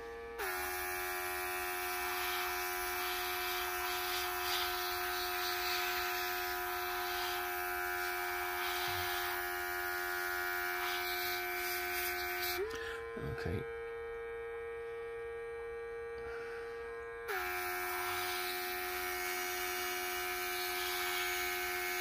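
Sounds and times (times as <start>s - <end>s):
compressor humming: 0.0s - 22.0s
airbrush spraying with hiss: 0.4s - 12.6s, 17.3s - 22.0s.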